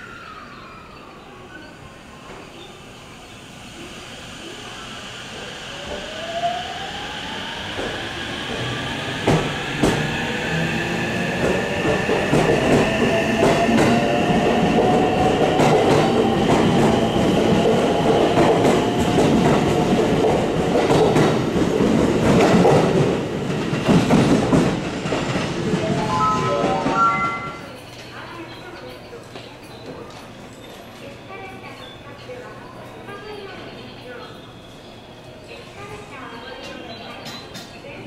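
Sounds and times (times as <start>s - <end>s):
train cars rumbling: 2.0s - 27.7s
melodic station chime: 25.7s - 27.8s.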